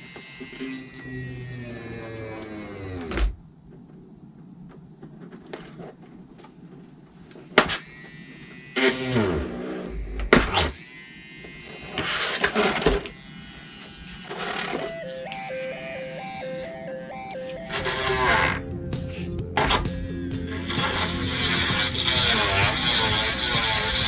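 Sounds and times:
small electric drill buzzing: 0.0s - 3.0s, 7.7s - 16.9s, 20.5s - 24.0s.

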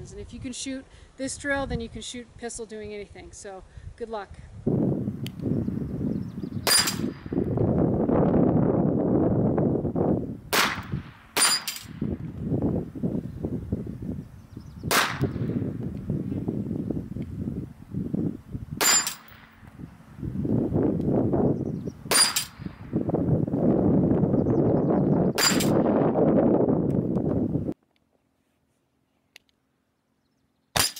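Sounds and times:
pistol shots: 6.7s - 7.2s, 10.5s - 12.0s, 14.9s - 15.5s
metallic ring of steel plate: 11.4s - 11.9s, 18.8s - 19.4s, 22.1s - 22.6s.

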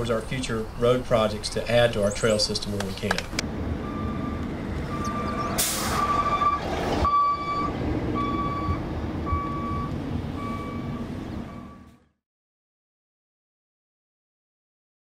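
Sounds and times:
car road and engine noise: 0.0s - 12.2s
electronic beep: 3.8s - 11.9s
trolley bus passing hiss: 5.3s - 7.0s.

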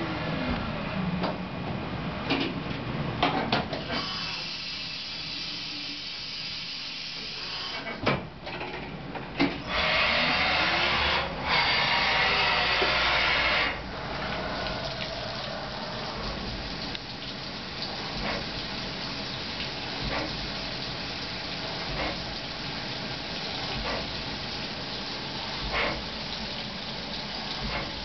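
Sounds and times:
coolant spraying hiss: 3.8s - 8.0s, 9.6s - 28.0s
low running hum: 13.8s - 28.0s.

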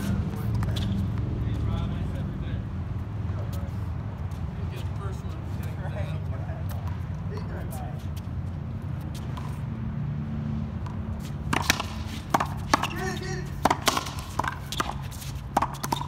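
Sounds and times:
racquetball hits and wall smacks: 10.8s - 16.0s.

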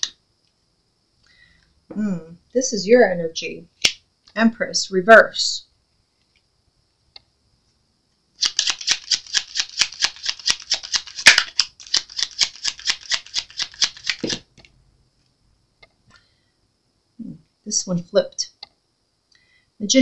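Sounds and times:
cards being shuffled: 8.4s - 14.7s.

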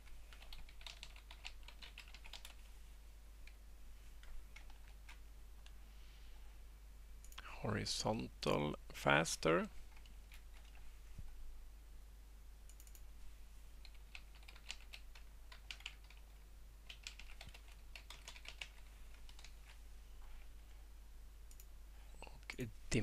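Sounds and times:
faint keyboard typing: 0.0s - 2.7s, 3.4s - 5.8s, 7.2s - 7.5s, 9.6s - 11.4s, 12.6s - 13.2s, 13.8s - 20.8s, 21.4s - 22.7s.

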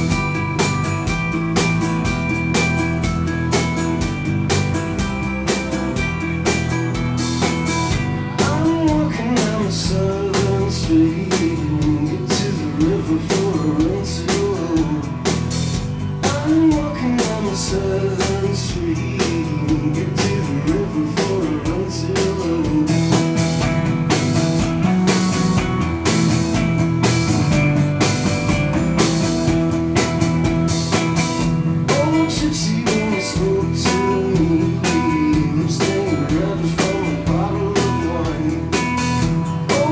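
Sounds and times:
drum kit: 0.0s - 39.9s
man singing: 8.3s - 15.5s, 16.2s - 23.5s, 31.8s - 39.9s.

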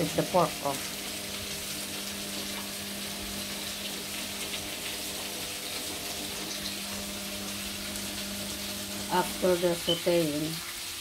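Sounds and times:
vegetables sizzling in a pan: 0.0s - 11.0s.

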